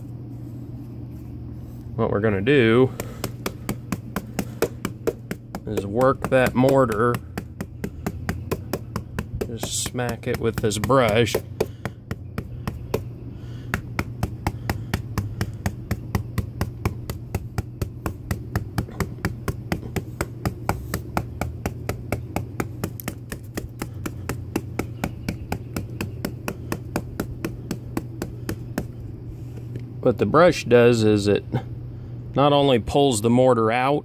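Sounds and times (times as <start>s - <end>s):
brush striking mortar joints: 2.6s - 29.7s.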